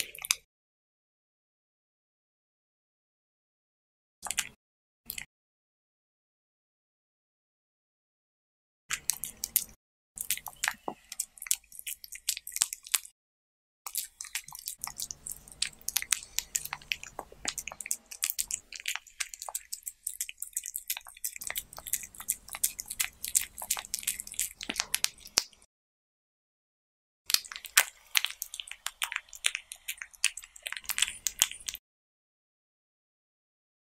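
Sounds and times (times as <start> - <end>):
cat chewing crunchily: 8.9 - 13.1, 13.9 - 25.6, 27.3 - 31.8.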